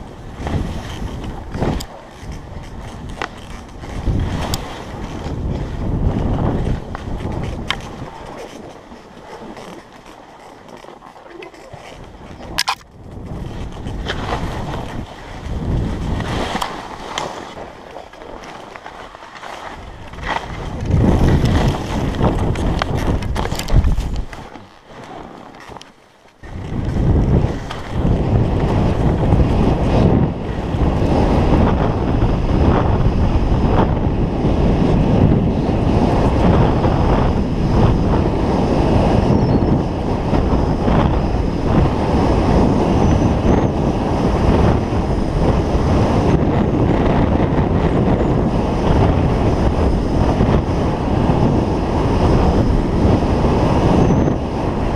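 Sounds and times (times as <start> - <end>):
wind buffeting microphone: 0.0 - 25.8, 26.4 - 54.9
skis scraping over snow: 0.0 - 54.9.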